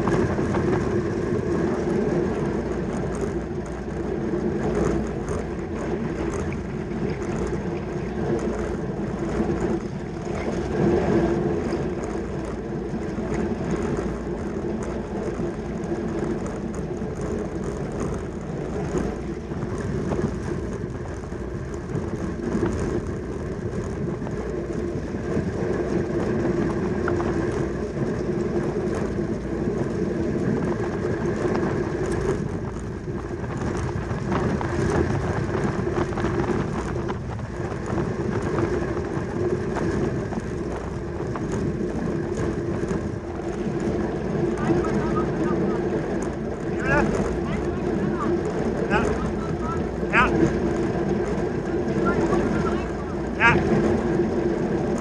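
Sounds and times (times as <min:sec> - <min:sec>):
bicycle tyres whirring: 0:00.0 - 0:55.0
rushing wind noise: 0:00.0 - 0:55.0.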